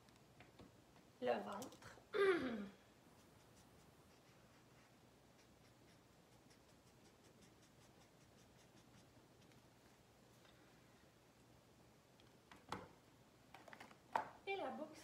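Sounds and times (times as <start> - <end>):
marker scratching on paper: 3.1 - 9.6.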